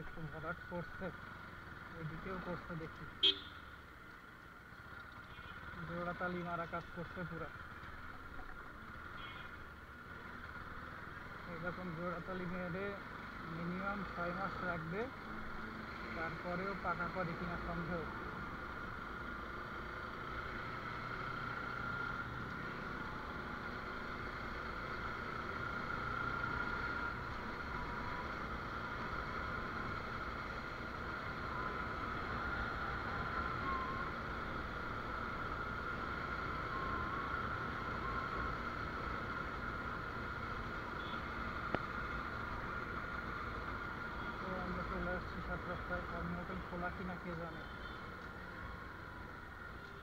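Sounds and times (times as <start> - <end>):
motorcycle engine drone: 0.0 - 50.0.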